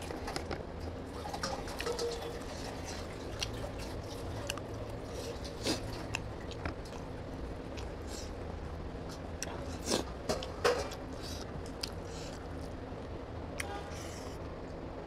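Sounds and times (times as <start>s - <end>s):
steady low hum: 0.0s - 15.0s
wet chewing: 1.4s - 8.4s, 9.0s - 12.8s.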